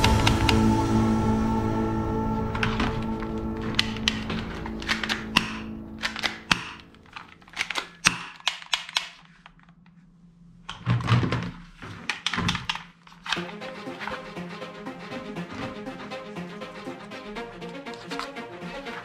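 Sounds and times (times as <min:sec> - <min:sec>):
plastic toy pistols clicking: 0:04.8 - 0:09.5
toy guns knocking and rattling: 0:04.8 - 0:09.7, 0:10.7 - 0:13.4.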